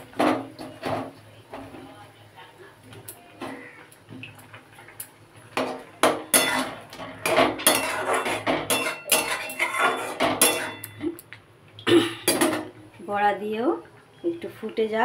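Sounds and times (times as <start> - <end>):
gravy simmering: 0.0 - 13.0
metal spatula scraping a pan: 5.6 - 11.0.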